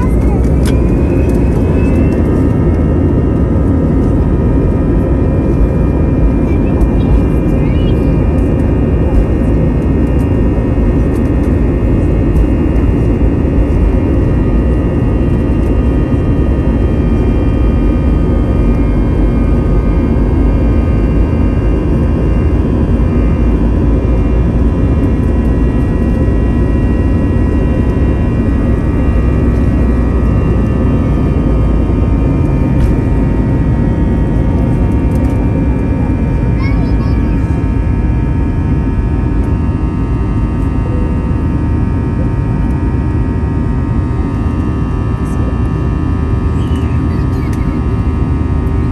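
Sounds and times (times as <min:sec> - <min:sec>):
jet engines roaring: 0:00.0 - 0:48.9
low rumble of runway: 0:00.0 - 0:48.9.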